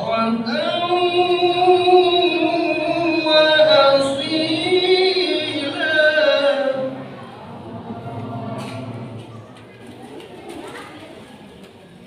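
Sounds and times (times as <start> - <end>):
man chanting into a microphone: 0.0 - 7.2.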